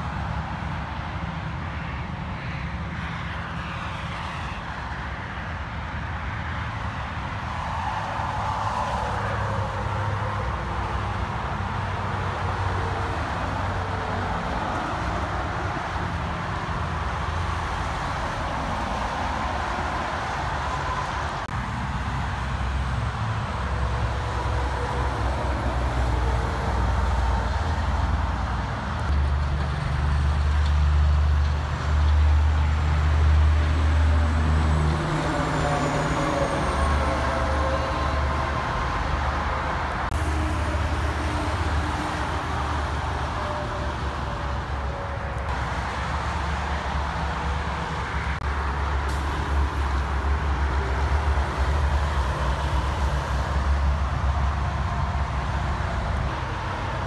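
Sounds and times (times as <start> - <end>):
highway traffic rumble: 0.0 - 57.0.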